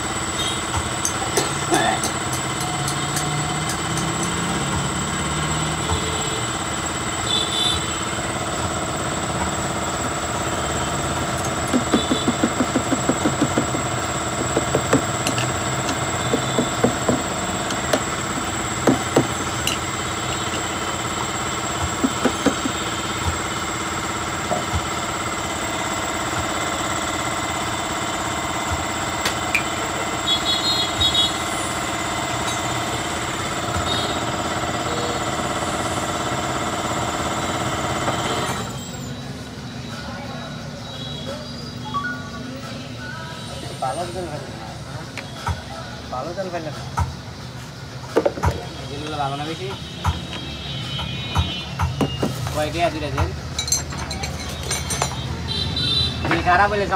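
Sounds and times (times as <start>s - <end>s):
machine running steadily: 0.0s - 39.0s
rapid knocks: 11.5s - 19.7s.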